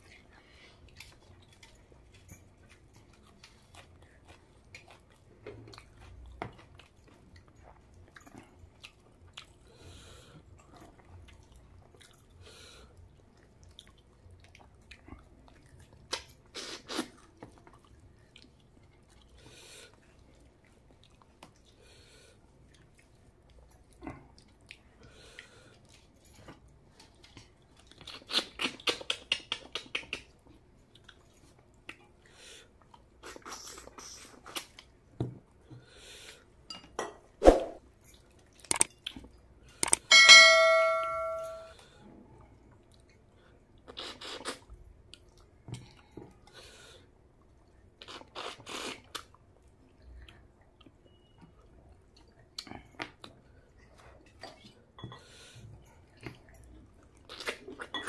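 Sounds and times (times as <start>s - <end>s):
wet chewing and lip-smacking: 0.0s - 12.4s, 13.0s - 36.4s, 38.1s - 40.1s, 42.4s - 46.6s, 47.3s - 54.8s, 55.8s - 58.0s
ringing ding: 40.1s - 41.7s.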